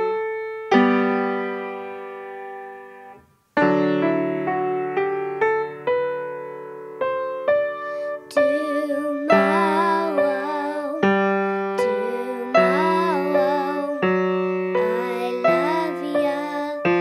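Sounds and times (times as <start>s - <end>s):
piano playing chords: 0.0s - 17.0s
girl singing: 8.0s - 17.0s.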